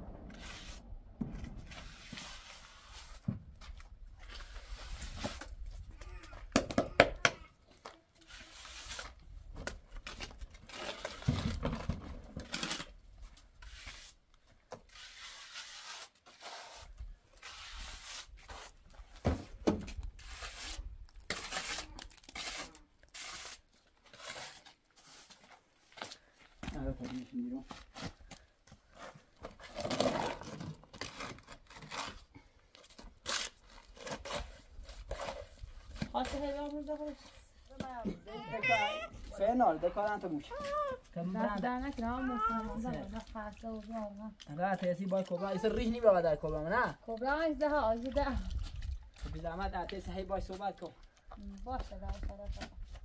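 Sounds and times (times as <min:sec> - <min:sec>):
trowel scraping wet plaster: 0:08.2 - 0:09.2, 0:13.6 - 0:18.9, 0:20.1 - 0:25.4, 0:29.0 - 0:36.8.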